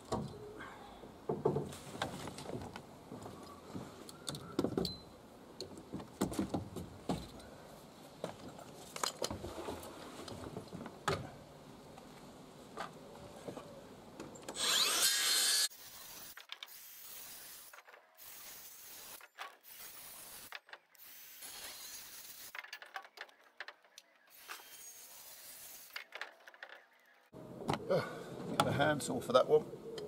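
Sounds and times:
circular saw cutting timber: 0:14.6 - 0:22.5, 0:24.3 - 0:26.0.

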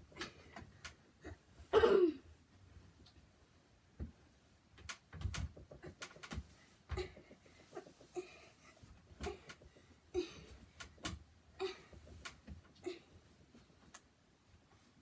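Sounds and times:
thumps and knocks on bed frame: 0:04.0 - 0:12.8.

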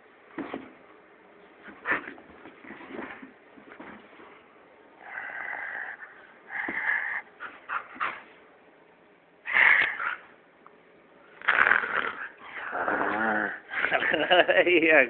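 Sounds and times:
dog whining: 0:11.5 - 0:14.0.

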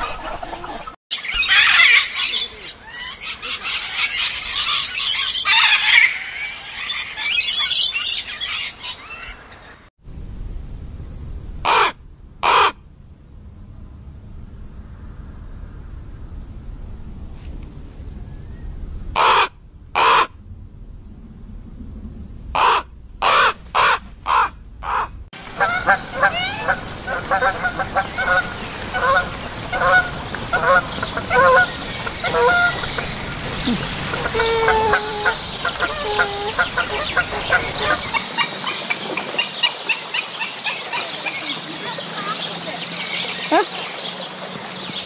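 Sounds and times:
pelicans calling: 0:19.2 - 0:20.3, 0:22.6 - 0:45.0
raven croaking: 0:22.5 - 0:41.6.

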